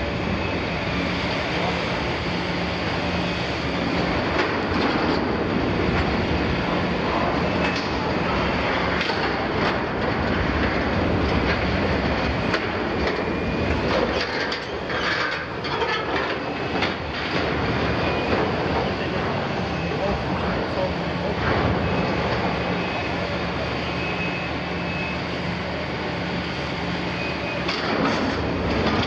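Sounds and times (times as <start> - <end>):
metal grinding and clanking: 8.8 - 18.9.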